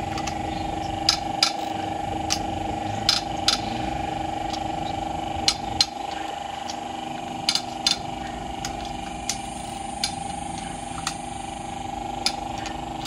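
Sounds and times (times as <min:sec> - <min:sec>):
steady high-pitched hum: 0:00.0 - 0:13.0
wrench and socket clicking: 0:00.1 - 0:00.4, 0:07.5 - 0:08.0, 0:08.6 - 0:11.2.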